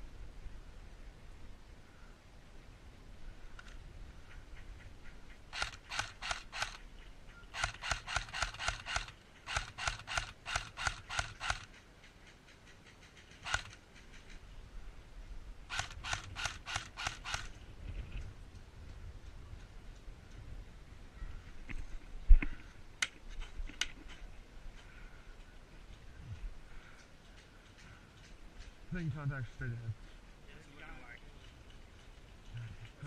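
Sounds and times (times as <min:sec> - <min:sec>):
airsoft rifle firing bursts: 0:05.5 - 0:06.8, 0:07.5 - 0:11.7, 0:13.4 - 0:13.8, 0:15.7 - 0:17.5.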